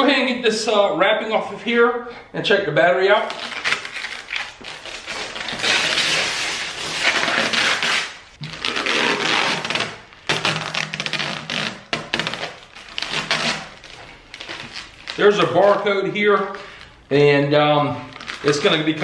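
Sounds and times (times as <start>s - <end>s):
plastic wrap crinkling: 3.2s - 17.2s, 18.0s - 19.0s.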